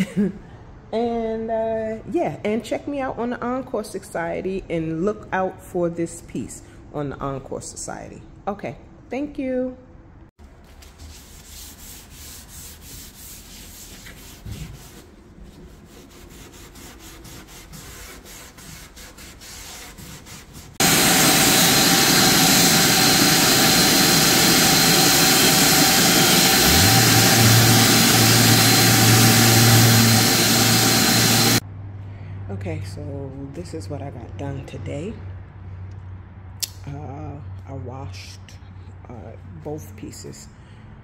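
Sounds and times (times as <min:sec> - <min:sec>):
hand rubbing wood: 0:10.8 - 0:20.8
electric sander on wood: 0:20.8 - 0:31.6
low hum: 0:20.8 - 0:31.6.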